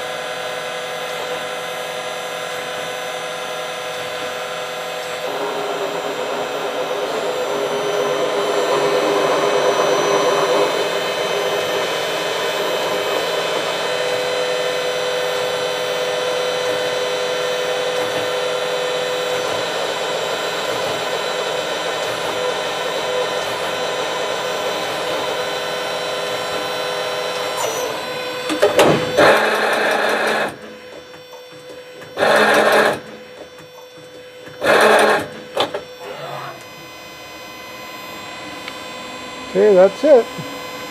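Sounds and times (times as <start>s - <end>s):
cnc machine droning: 0.0s - 40.9s
high whining tones: 0.0s - 40.9s
loud noise bursts: 1.2s - 30.7s.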